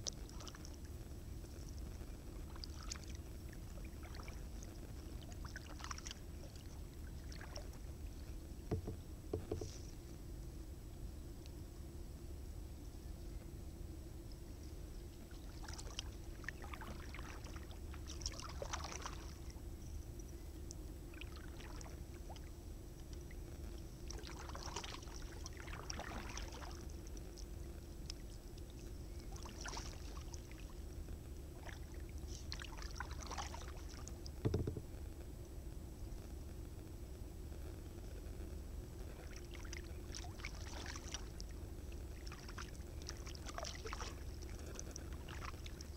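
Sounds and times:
steady low hum: 0.0 - 45.9
kayak paddle splashing: 15.6 - 19.4, 24.2 - 26.8, 29.4 - 30.4, 42.2 - 44.5.

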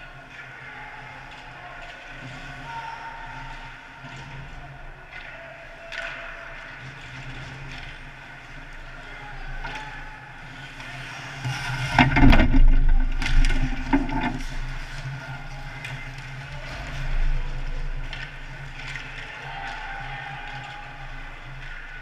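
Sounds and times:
hockey sticks and puck clacking: 0.3 - 22.0
skates scraping on ice: 10.4 - 20.1.

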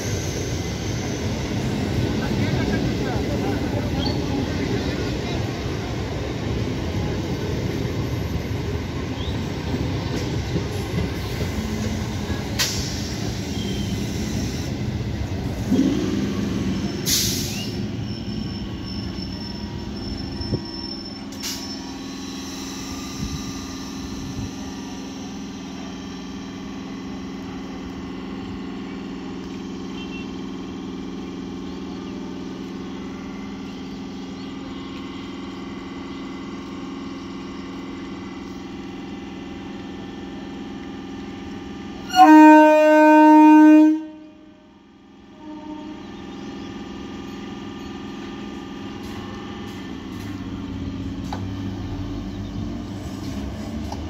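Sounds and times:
train electrical hum: 0.0 - 54.0
train wheels rumbling on rails: 0.0 - 54.0.

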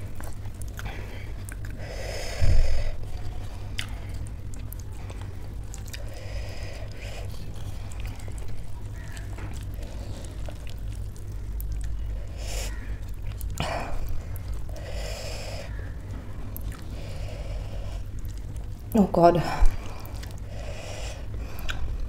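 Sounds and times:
soft chewing: 0.0 - 22.0.

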